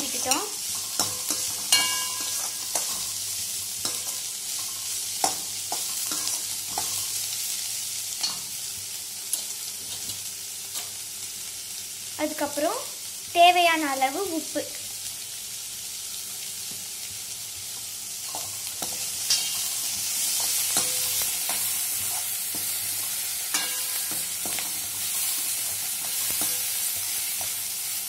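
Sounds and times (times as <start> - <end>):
spatula scraping and clinking pan: 0.0 - 7.1, 18.2 - 27.6
vegetables sizzling in oil: 0.0 - 28.0.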